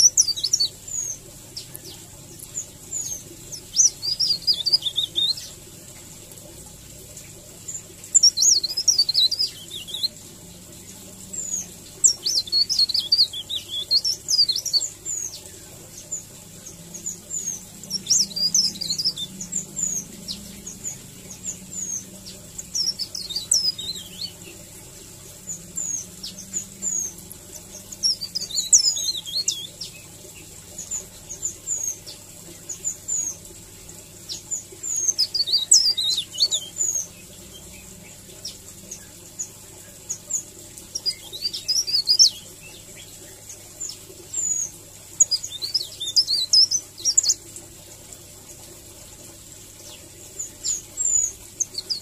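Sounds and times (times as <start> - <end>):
bird chirps: 0.0 - 5.5, 8.1 - 10.2, 11.3 - 24.7, 25.4 - 33.4, 34.3 - 39.1
warbler singing twittering song: 0.0 - 52.0.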